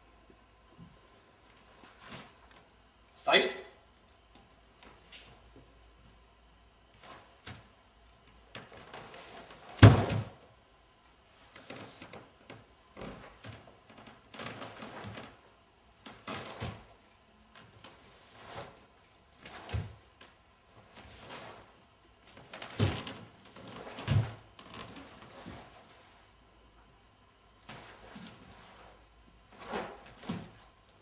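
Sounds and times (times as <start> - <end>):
foot thudding on floor: 9.8 - 10.4.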